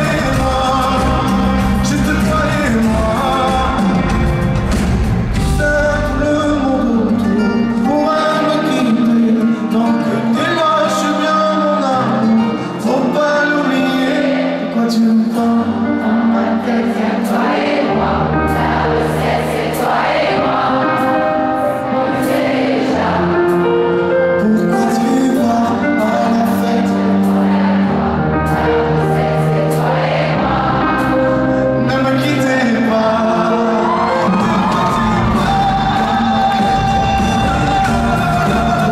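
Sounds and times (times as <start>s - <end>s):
man singing into microphone: 0.0s - 4.4s, 5.4s - 17.8s, 23.6s - 27.4s, 31.0s - 38.9s
backing music chords and bass: 0.0s - 8.0s, 34.2s - 38.9s.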